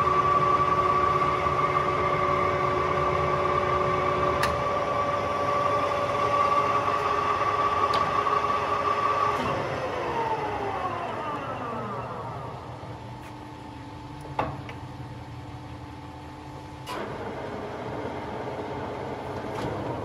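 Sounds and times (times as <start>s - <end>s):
motor humming: 0.0s - 13.3s
lathe gearing whining: 0.0s - 13.9s, 16.4s - 20.0s.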